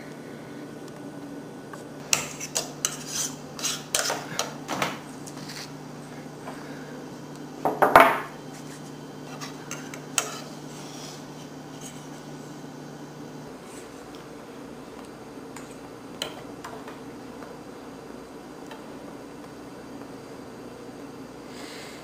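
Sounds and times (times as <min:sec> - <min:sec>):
fork scraping on plate: 0:02.1 - 0:04.6, 0:08.6 - 0:11.2.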